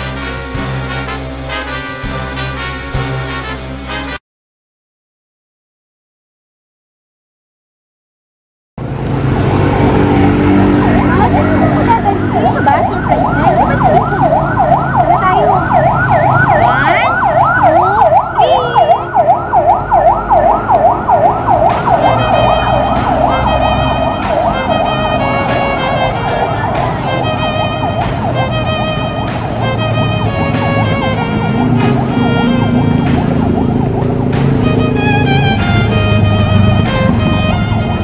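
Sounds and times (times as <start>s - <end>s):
siren yelping: 10.6s - 38.0s.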